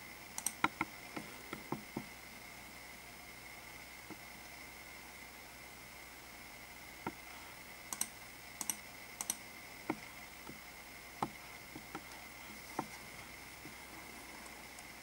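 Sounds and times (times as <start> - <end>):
faint high-pitched whine: 0.0 - 15.0.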